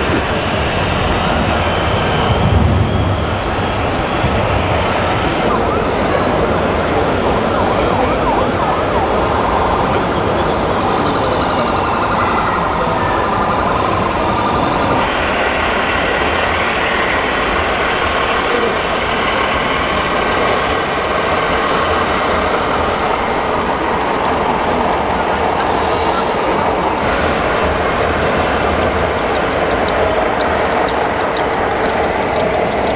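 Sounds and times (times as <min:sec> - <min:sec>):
wailing siren-like tone: 0:00.0 - 0:17.2
exhibition hall din: 0:00.0 - 0:32.9.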